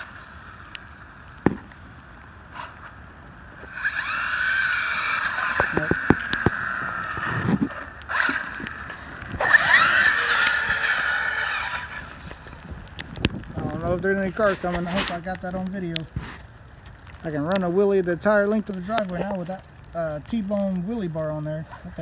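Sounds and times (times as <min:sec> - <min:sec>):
rc car motor whining: 0:02.5 - 0:13.3.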